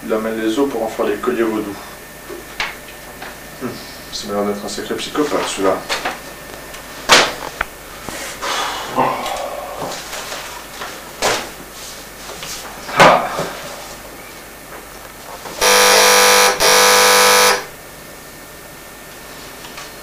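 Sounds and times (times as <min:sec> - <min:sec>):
telephone ringing: 0:15.6 - 0:17.7.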